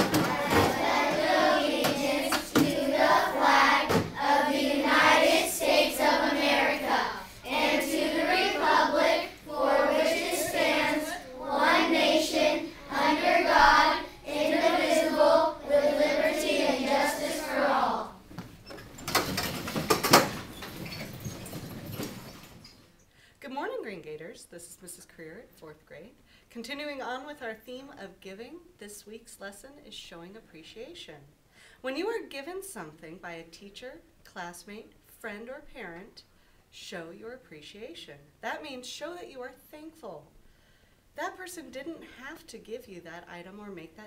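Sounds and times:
children reciting together: 0.0 - 18.2.

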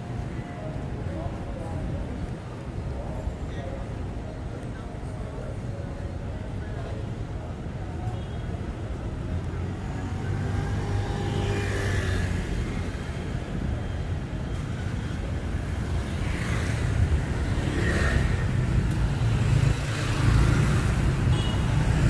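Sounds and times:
traffic engines rumbling: 0.0 - 22.0
vehicles passing: 8.6 - 22.0.

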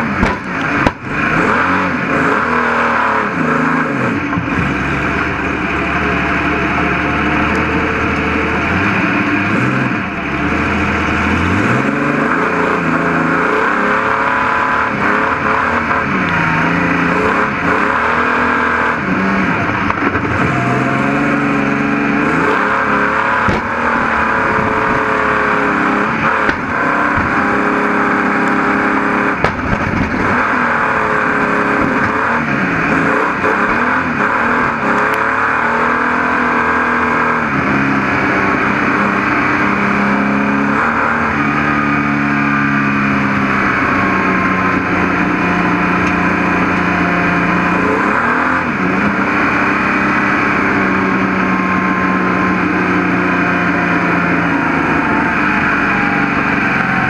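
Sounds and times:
car engine revving hard: 0.0 - 57.0
sharp knock: 0.2 - 1.1.

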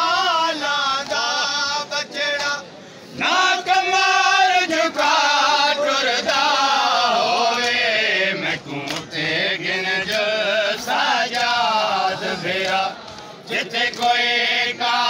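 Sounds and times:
men chanting a lament: 0.0 - 15.0
chest slaps: 8.8 - 9.1.

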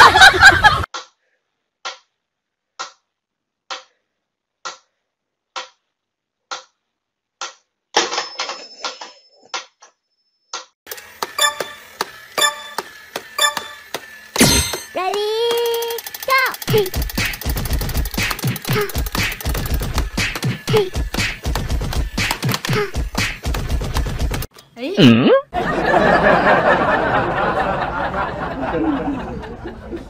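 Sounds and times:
wind-up toy clicking and ringing: 10.9 - 19.8
metronome ticking: 11.4 - 11.8, 12.4 - 12.8.

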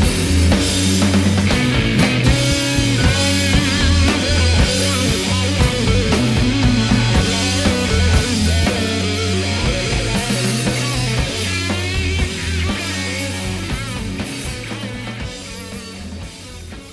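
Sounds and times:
rock music with guitar: 0.0 - 16.9.

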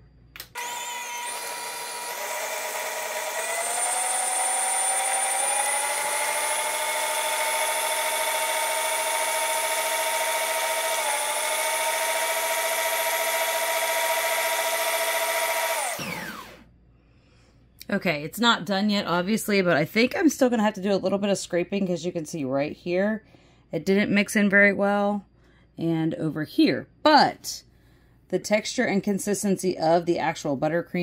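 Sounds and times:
stand mixer motor whining: 0.5 - 16.6.

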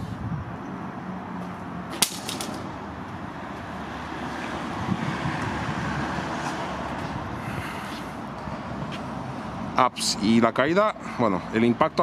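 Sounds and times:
bouncing clicks: 1.9 - 2.7
metal tool hitting concrete: 2.0 - 2.6.

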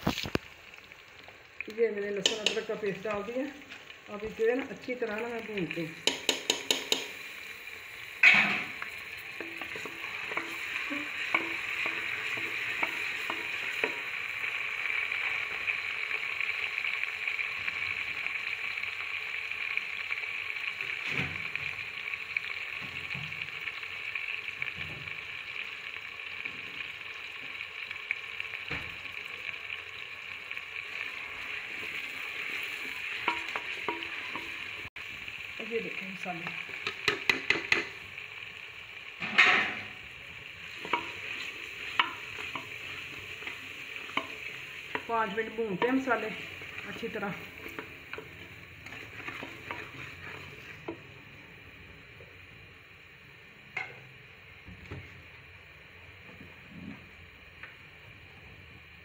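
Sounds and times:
food sizzling in oil: 0.0 - 59.0
spoon knocking against pot: 6.0 - 7.2, 36.8 - 38.0
spoon stirring in a pot: 6.0 - 7.2, 8.7 - 14.2, 31.0 - 34.8, 36.7 - 38.0, 40.6 - 51.0.

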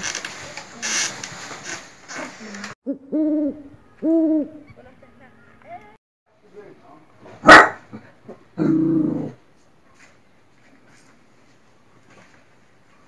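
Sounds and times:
rustling noise: 0.0 - 2.8, 9.5 - 13.0
owl hooting: 2.9 - 4.7.

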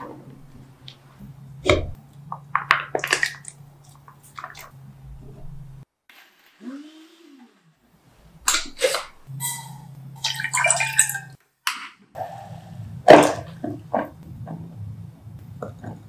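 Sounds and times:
water poured into saucepan: 10.2 - 11.3.

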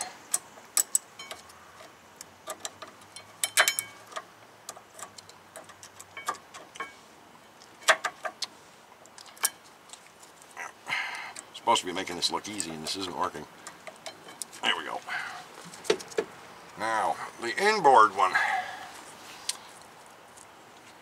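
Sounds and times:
metal clicks and clinks: 0.0 - 7.0, 12.5 - 13.0.

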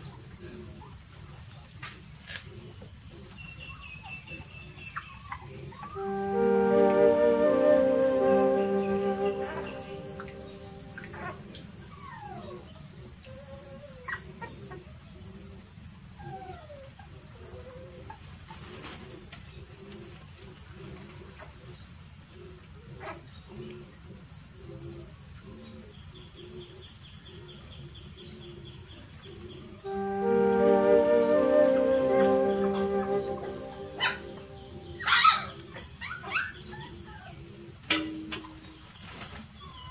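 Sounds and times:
insects chirping chorus: 0.0 - 14.3, 23.2 - 39.9
falling whine-like calls: 6.0 - 11.2, 29.9 - 35.0.

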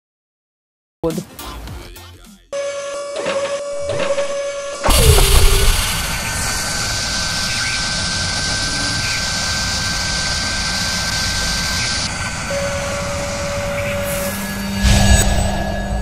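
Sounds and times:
high held tone: 2.6 - 7.6
lower held tone: 2.6 - 16.0
spinning spindle whir: 2.8 - 14.8.

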